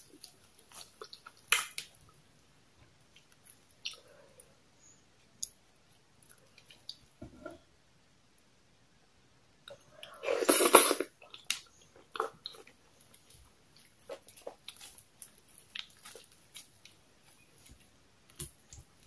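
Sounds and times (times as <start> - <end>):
person chewing food: 0.0 - 2.0, 9.7 - 19.0.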